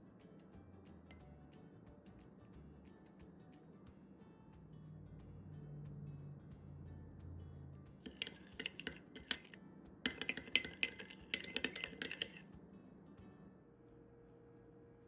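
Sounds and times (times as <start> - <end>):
metal spoon clinking glass bowl: 8.0 - 12.5.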